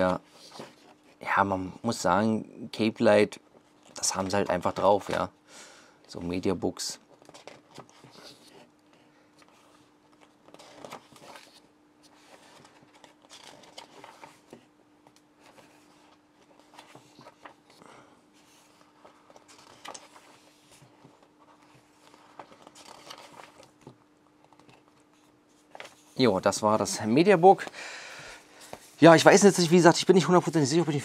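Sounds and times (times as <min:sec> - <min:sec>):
paper pages turning: 0:07.0 - 0:26.8.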